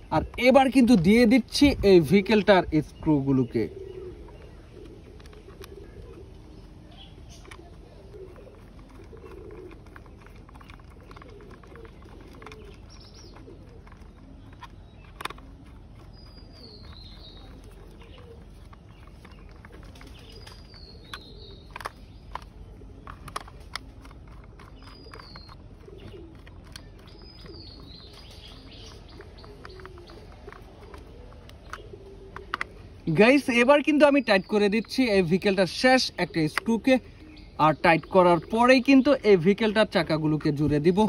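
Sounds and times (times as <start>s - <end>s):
high falling bird chirp: 0.0s - 41.0s
lower wavering bird calls: 2.3s - 41.0s
sharp plastic clicks: 8.8s - 33.2s.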